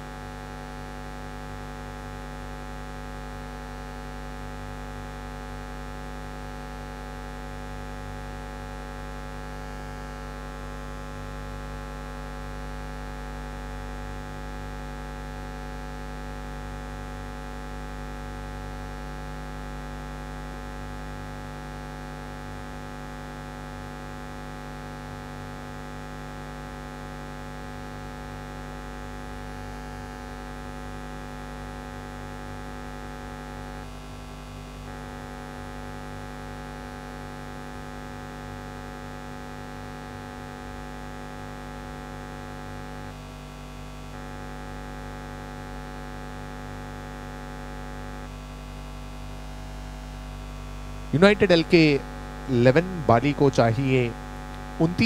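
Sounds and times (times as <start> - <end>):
electrical mains hum: 50.0 - 55.0.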